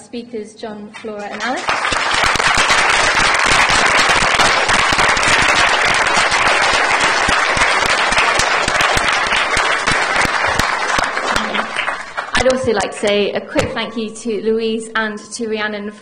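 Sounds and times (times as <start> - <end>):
audience applauding: 1.2 - 13.2.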